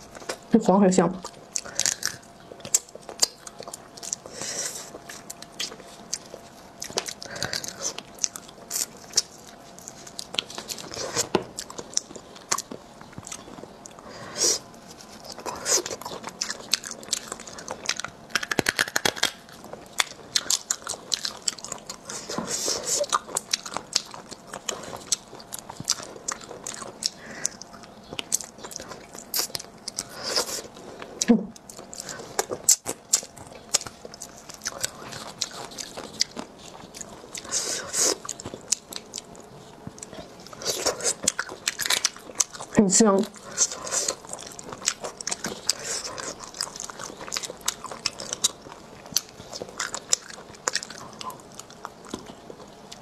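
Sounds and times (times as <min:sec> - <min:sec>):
wet biting and chewing: 0:01.2 - 0:53.0.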